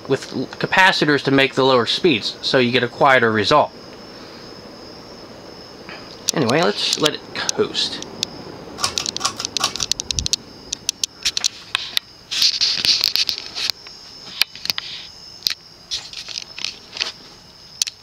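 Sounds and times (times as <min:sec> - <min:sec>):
sharp clicks and ticks: 0:06.1 - 0:14.8
short hiss: 0:11.2 - 0:15.1.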